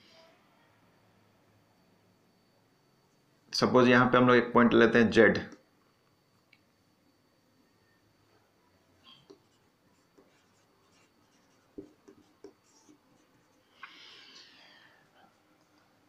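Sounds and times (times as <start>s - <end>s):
marker pen writing on whiteboard: 9.1s - 13.7s.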